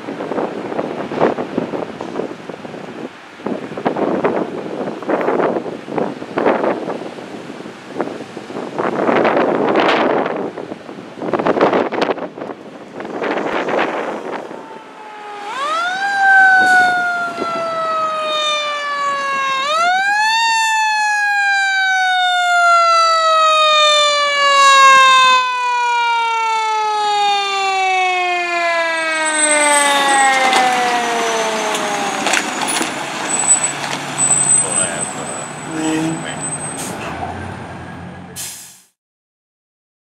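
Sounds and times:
fire truck siren: 0:12.9 - 0:38.6.

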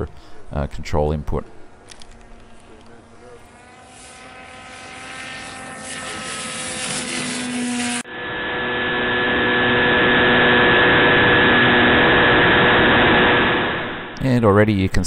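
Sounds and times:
model aircraft propeller drone: 0:01.4 - 0:14.2.

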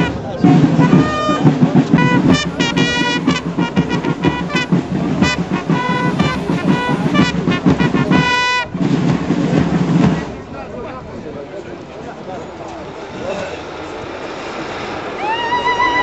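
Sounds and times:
high-pitched wind instrument: 0:00.0 - 0:08.8, 0:15.1 - 0:16.0.

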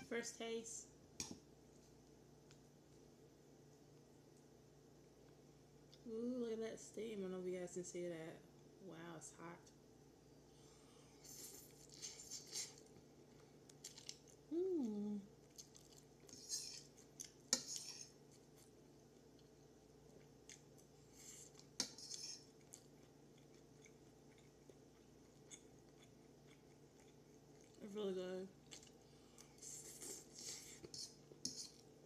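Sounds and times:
hummed mm: 0:14.5 - 0:15.4.

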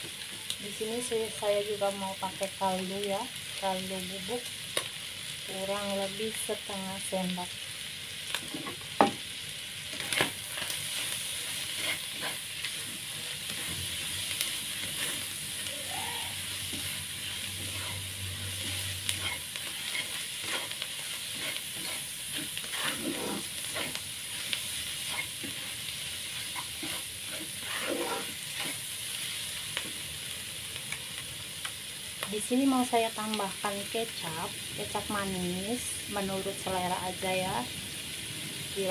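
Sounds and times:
food sizzling in a pan: 0:00.0 - 0:38.9
spatula scraping and knocking pan: 0:09.9 - 0:15.7, 0:16.4 - 0:28.8.

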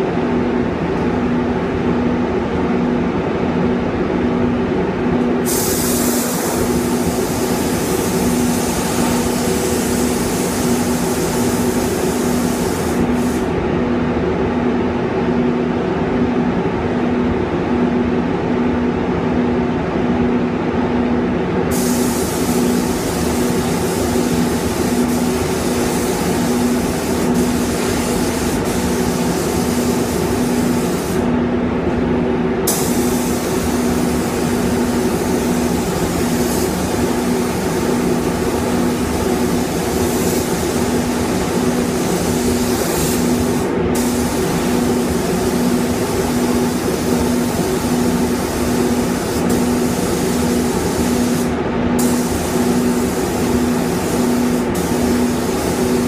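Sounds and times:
spray booth hum: 0:05.2 - 0:13.5, 0:21.7 - 0:31.4, 0:32.6 - 0:56.0
spray gun hissing: 0:05.4 - 0:13.5, 0:21.7 - 0:31.3, 0:32.7 - 0:56.0.

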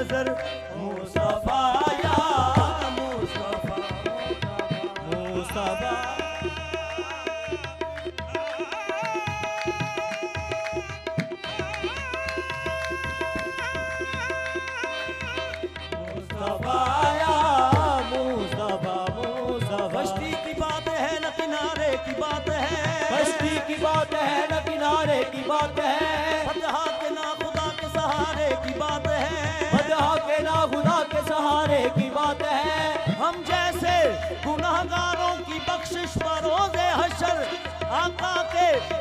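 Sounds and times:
harmonium melody over drone: 0:00.0 - 0:39.0
person singing ornamented runs: 0:00.0 - 0:39.0
tabla beating: 0:00.0 - 0:39.0
hand-clapping: 0:07.9 - 0:15.7.

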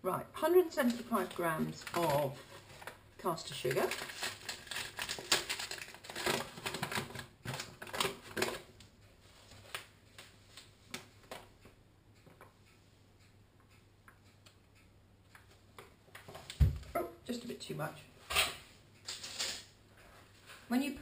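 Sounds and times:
paper bag crinkling: 0:03.7 - 0:08.6.

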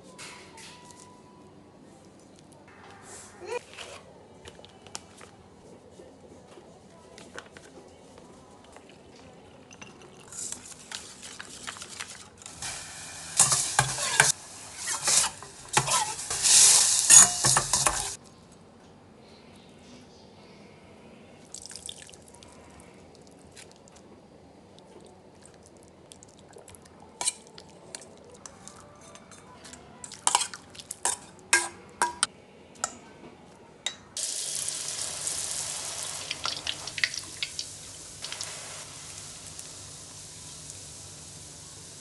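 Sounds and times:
mushrooms sizzling in hot oil: 0:12.5 - 0:18.2, 0:34.2 - 0:42.0.

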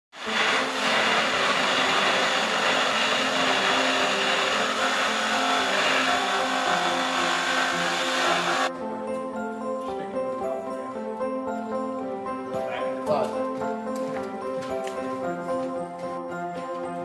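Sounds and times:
rushing blower motor noise: 0:00.1 - 0:08.7
music playing: 0:00.3 - 0:17.0.

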